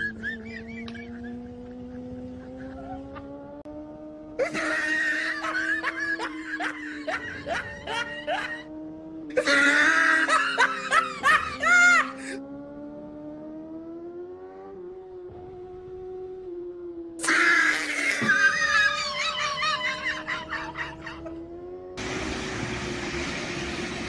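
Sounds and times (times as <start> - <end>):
person laughing: 0.0 - 3.2, 4.4 - 8.7, 9.3 - 12.4, 17.2 - 21.4.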